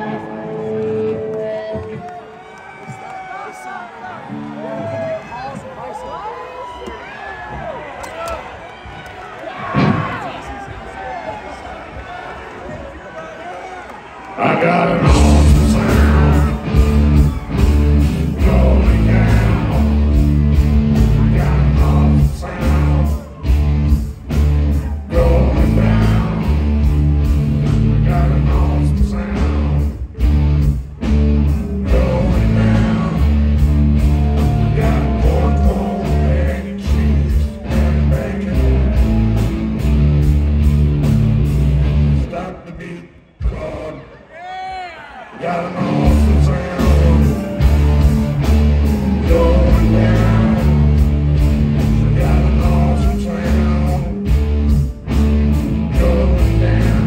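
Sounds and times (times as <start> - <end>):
person singing: 14.4 - 20.2, 20.9 - 23.5, 24.8 - 26.8, 27.6 - 30.0, 31.4 - 39.3, 45.4 - 54.5, 55.7 - 57.0
loud rock music: 14.4 - 42.7, 45.5 - 57.0
heavy bass line: 14.6 - 42.5, 45.9 - 57.0.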